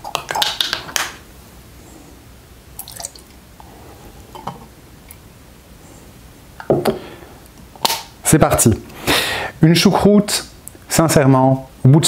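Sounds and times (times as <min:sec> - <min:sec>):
water trickling into airlock: 0:02.8 - 0:03.4.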